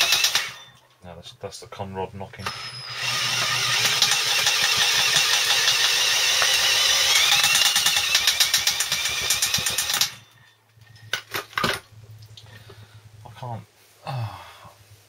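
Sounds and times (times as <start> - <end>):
electric drill turning engine: 0.0 - 0.8, 2.4 - 10.4.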